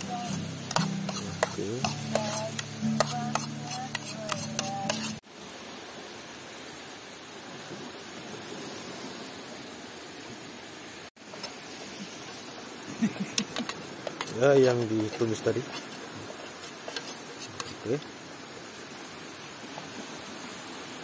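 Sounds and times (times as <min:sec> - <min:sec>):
food sizzling: 0:00.0 - 0:05.2, 0:11.2 - 0:18.1
utensil scraping frying pan: 0:00.0 - 0:05.2, 0:13.4 - 0:17.9.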